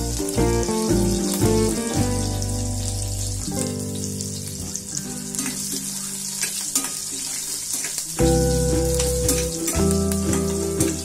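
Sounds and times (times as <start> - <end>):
background music with held notes: 0.0 - 7.3, 8.0 - 11.0
hot oil sizzling and crackling: 0.0 - 11.0
spoon stirring in pan: 5.2 - 8.2.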